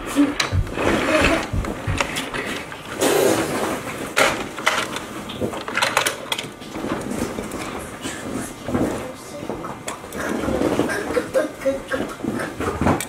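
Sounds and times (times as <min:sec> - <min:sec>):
plastic toy clicks and knocks: 0:04.2 - 0:07.8.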